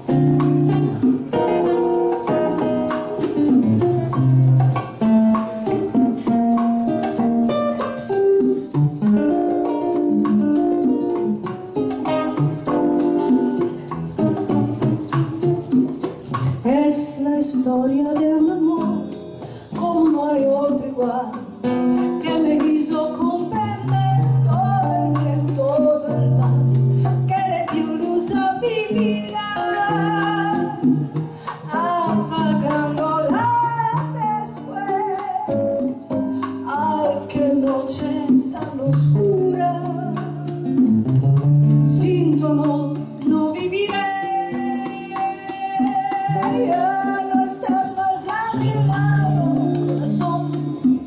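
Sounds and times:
hand percussion: 0:00.0 - 0:51.0
nylon-string guitar: 0:00.0 - 0:51.0
woman singing: 0:16.5 - 0:40.8, 0:41.9 - 0:51.0.

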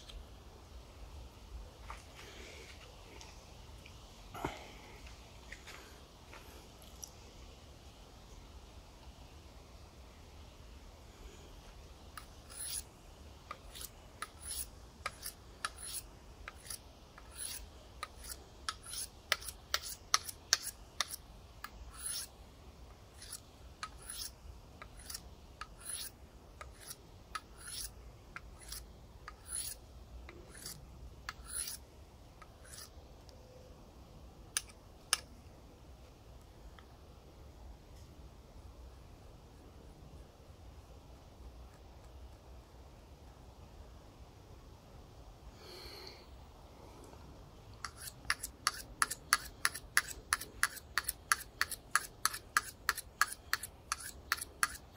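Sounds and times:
knife scraping on sharpening steel: 0:12.2 - 0:12.9, 0:13.5 - 0:22.3, 0:23.1 - 0:31.8, 0:32.4 - 0:32.9, 0:47.8 - 0:54.9.

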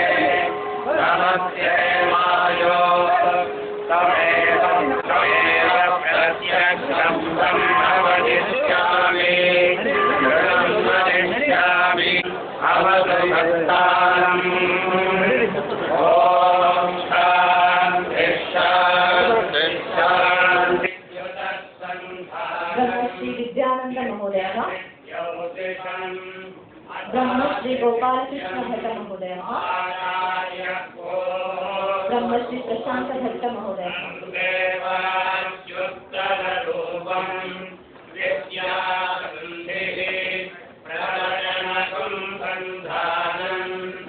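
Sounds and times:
men chanting: 0:00.0 - 0:23.5, 0:24.3 - 0:44.0.

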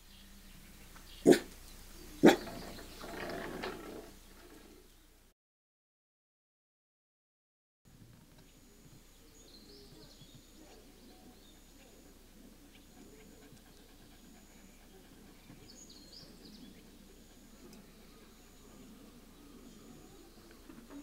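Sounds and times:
dog panting softly: 0:09.9 - 0:18.9.

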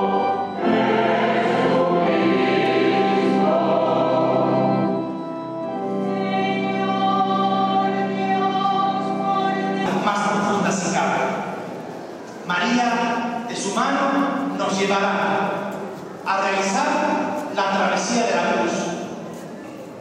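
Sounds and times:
choir singing held chords: 0:00.0 - 0:11.5.

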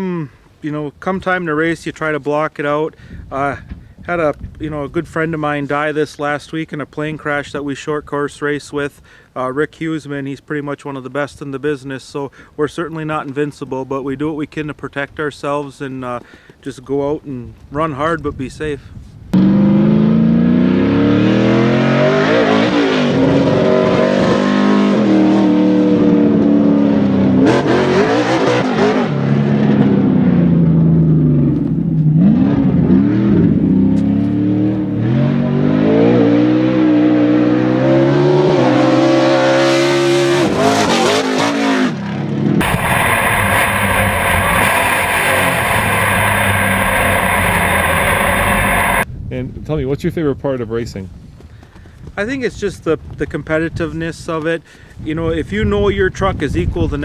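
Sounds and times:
onboard engine and wind noise: 0:03.1 - 0:04.7, 0:48.5 - 0:49.9
race truck engine revving: 0:19.4 - 0:31.1, 0:32.1 - 0:49.0.

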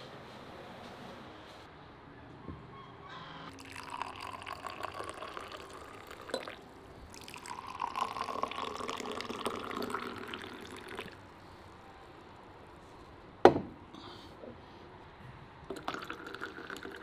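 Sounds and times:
tea pouring into glass cups: 0:03.5 - 0:11.4, 0:15.7 - 0:17.0.

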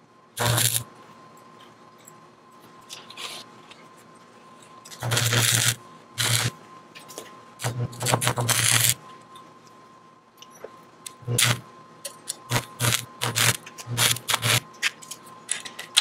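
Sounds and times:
arc welder crackling and buzzing: 0:00.4 - 0:00.9, 0:04.9 - 0:06.6, 0:07.6 - 0:09.0, 0:11.0 - 0:15.2.

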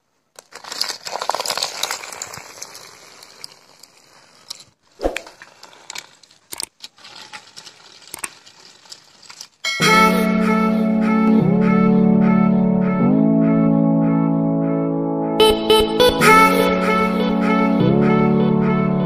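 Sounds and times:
toy car rattling over concrete: 0:00.2 - 0:10.3.

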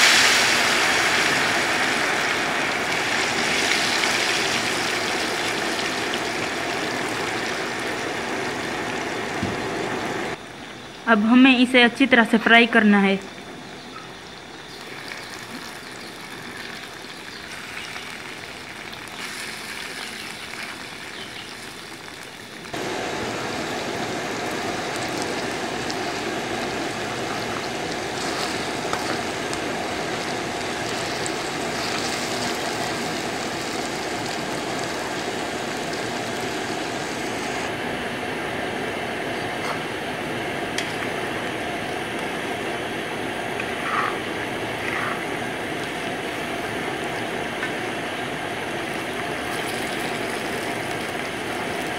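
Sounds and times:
deep-frying sizzle and bubble: 0:00.0 - 0:11.4, 0:13.3 - 0:51.9.

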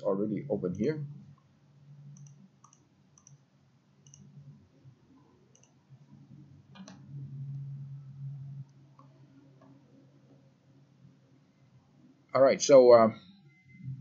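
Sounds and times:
low hum: 0:00.0 - 0:14.0
computer mouse clicks: 0:02.1 - 0:03.4, 0:04.0 - 0:04.3, 0:05.5 - 0:05.8, 0:06.7 - 0:07.6.

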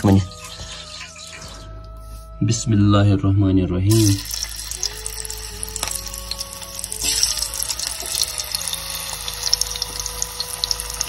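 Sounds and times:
potato strips frying in oil: 0:03.9 - 0:11.0.

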